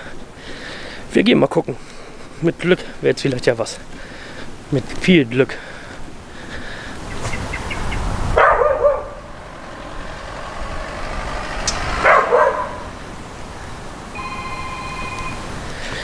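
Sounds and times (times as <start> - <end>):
dog barking: 8.4 - 9.3, 12.0 - 12.9.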